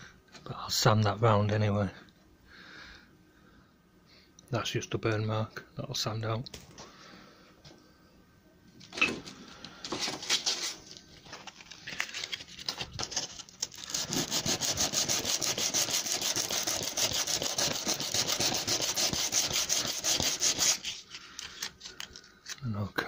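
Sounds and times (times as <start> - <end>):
sanding block rubbing wood: 13.9 - 21.0.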